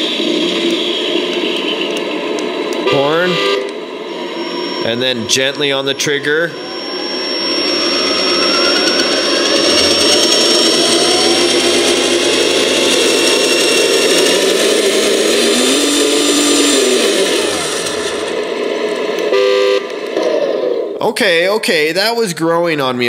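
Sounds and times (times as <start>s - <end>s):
simulated diesel engine: 0.0s - 21.8s
short steady tone: 2.8s - 18.3s.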